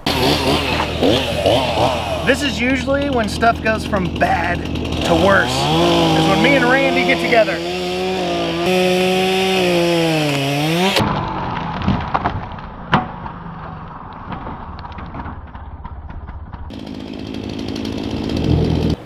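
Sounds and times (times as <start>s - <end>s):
chainsaw running: 0.0s - 11.5s, 16.7s - 19.0s
chainsaw cutting branch: 0.0s - 11.8s, 16.7s - 19.0s
wood snapping and cracking: 7.6s - 19.0s.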